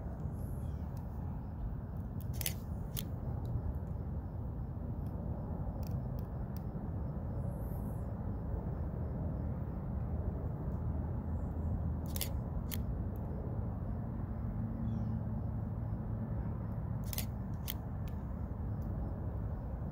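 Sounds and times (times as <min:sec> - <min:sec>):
sharp clicks: 0:02.0 - 0:03.6, 0:12.0 - 0:13.2, 0:17.0 - 0:18.2.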